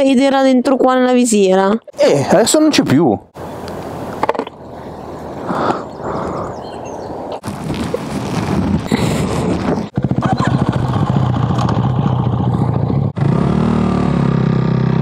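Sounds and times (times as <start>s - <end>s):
motorcycle engines pulsing: 9.4s - 15.0s.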